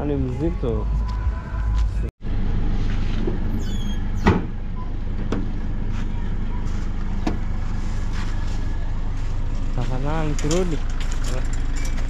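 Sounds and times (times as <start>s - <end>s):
pickup engine idling: 4.5s - 12.0s.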